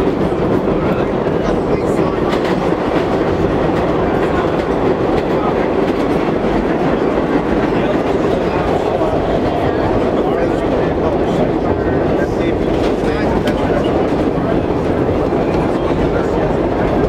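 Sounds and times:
subway car rumble: 0.0 - 17.0.

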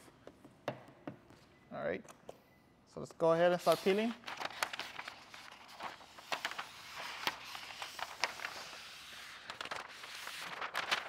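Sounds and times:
plastic film crinkling: 3.7 - 11.0.

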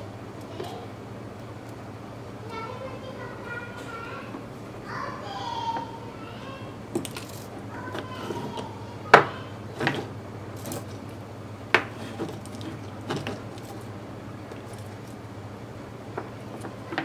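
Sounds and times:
steady low hum: 0.0 - 17.0
objects clicking on wooden workbench: 6.9 - 11.0.

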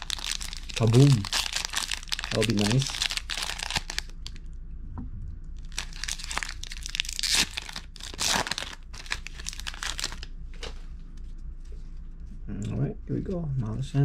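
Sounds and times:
plastic wrapper tearing and crinkling: 0.0 - 4.4, 5.6 - 10.3.

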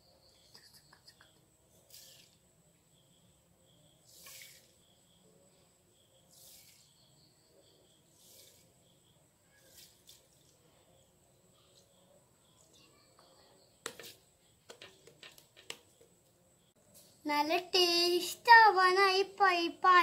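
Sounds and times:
sugar pouring soft hiss: 3.9 - 5.4, 6.2 - 7.1, 7.9 - 11.0.

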